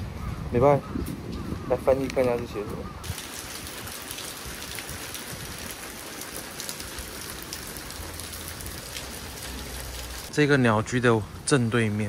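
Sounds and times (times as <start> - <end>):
heavy rain falling: 3.0 - 10.3.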